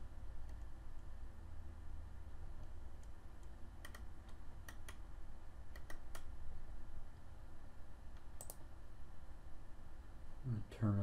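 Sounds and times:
computer mouse clicking: 0:00.4 - 0:01.1, 0:02.6 - 0:05.1, 0:05.7 - 0:06.4, 0:08.1 - 0:08.7.

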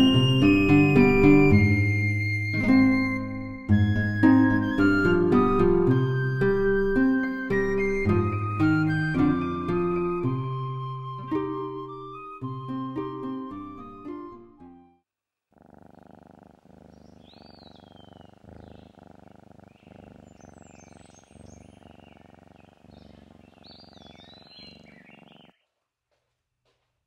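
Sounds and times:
plucked background music: 0:00.0 - 0:15.0
cat purring: 0:15.5 - 0:25.6.

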